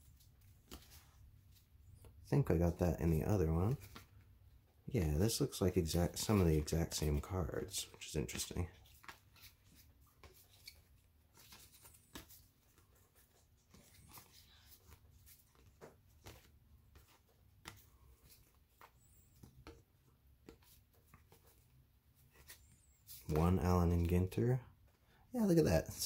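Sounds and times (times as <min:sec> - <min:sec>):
cards sliding and scratching: 0:00.1 - 0:01.7, 0:05.8 - 0:23.4.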